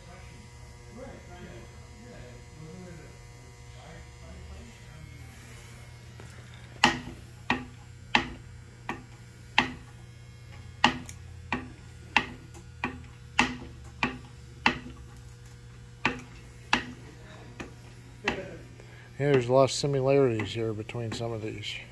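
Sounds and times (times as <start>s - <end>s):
sharp ringing knocks: 6.8s - 9.9s, 10.8s - 15.0s.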